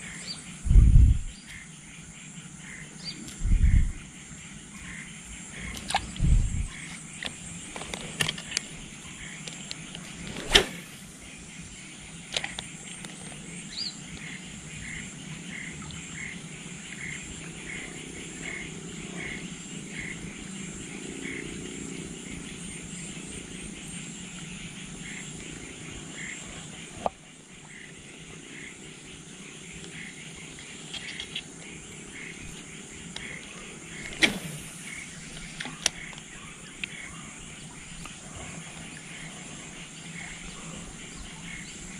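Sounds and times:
steady low rush: 0.6 - 1.4, 3.4 - 4.1, 6.1 - 6.8
high insect buzz: 2.7 - 15.0, 23.8 - 41.9.

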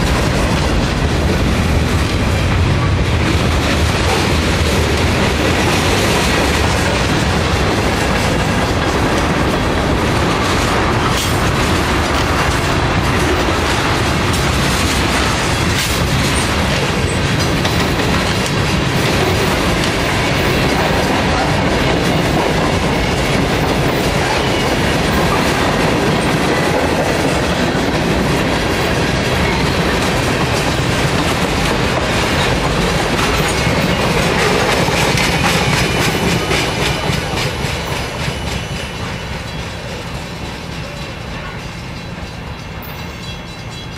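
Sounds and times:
train wheels rumbling on rails: 0.0 - 43.9.

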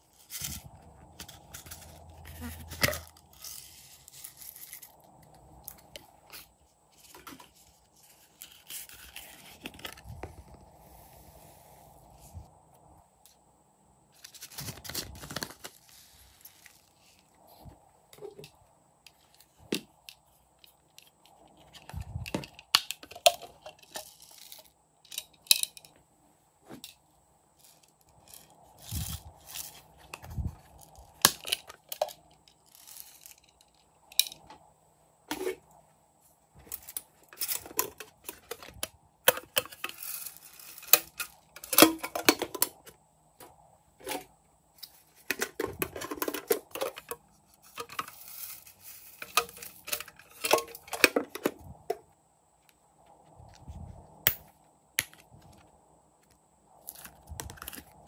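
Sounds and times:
plastic containers clicking: 45.3 - 47.2.

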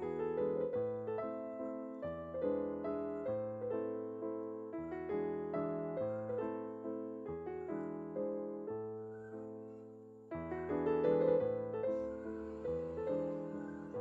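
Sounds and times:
piano music: 0.0 - 14.0.

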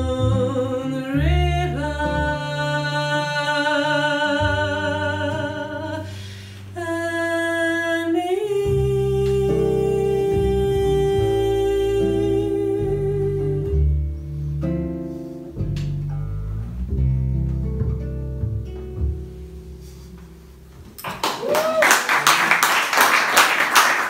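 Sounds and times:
woman singing with vibrato: 0.0 - 14.0
double bass: 0.0 - 21.1.

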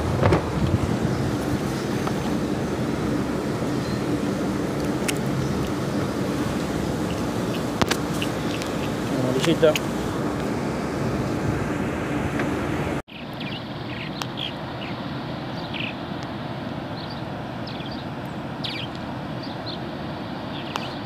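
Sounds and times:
low engine hum: 0.0 - 20.6
water noise: 0.0 - 21.0
wind: 0.0 - 21.0
bird chirps: 3.7 - 4.2, 5.1 - 9.2, 13.1 - 15.0, 18.6 - 19.8.

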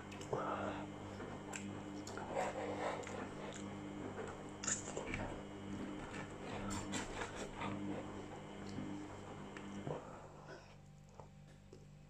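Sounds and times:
person chewing: 0.0 - 9.0.

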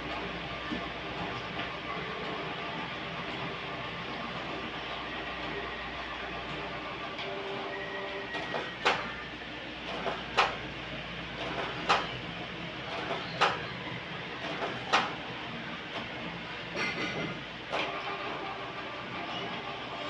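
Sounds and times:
printer clicking: 8.3 - 9.2, 9.8 - 10.7, 11.3 - 12.2, 12.8 - 16.2.

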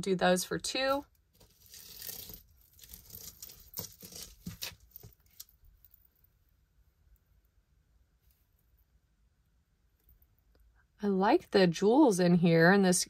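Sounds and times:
soft rustle: 0.9 - 6.4.

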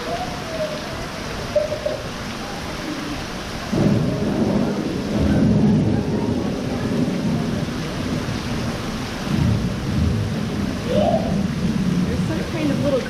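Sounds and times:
rain falling: 0.0 - 13.0
thunder rumbling: 3.5 - 13.0.

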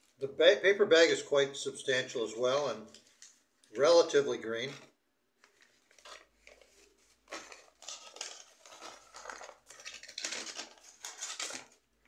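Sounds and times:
paper bag crinkling: 5.5 - 11.9.

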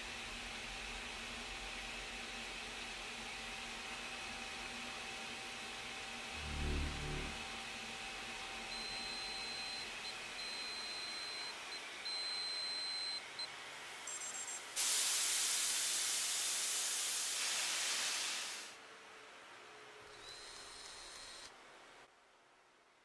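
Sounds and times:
thin high electronic tone: 6.4 - 7.5
loud rush of hiss: 14.8 - 18.8
steady hiss: 14.8 - 18.8.

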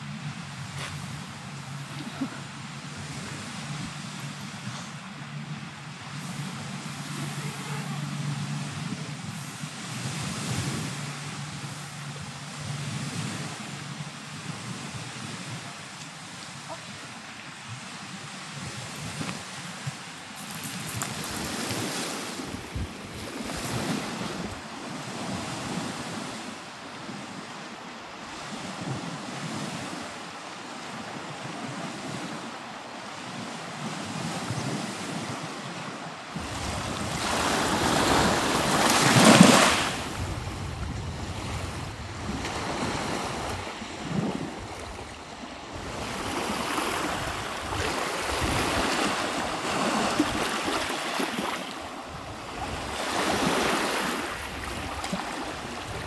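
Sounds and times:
wind buffeting microphone: 0.0 - 26.4, 36.3 - 50.8
waves washing onto shore: 0.0 - 56.0.

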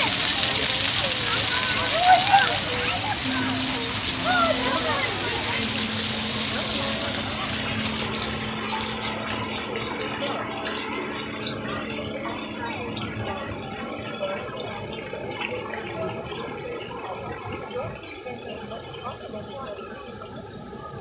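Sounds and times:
water spraying: 0.0 - 13.4
children shouting and chattering: 0.0 - 20.5.

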